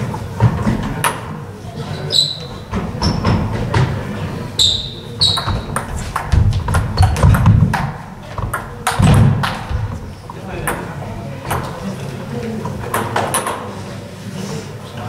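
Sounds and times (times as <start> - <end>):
murmur of voices: 0.0 - 15.0
shoes squeaking on wooden floor: 1.8 - 8.5.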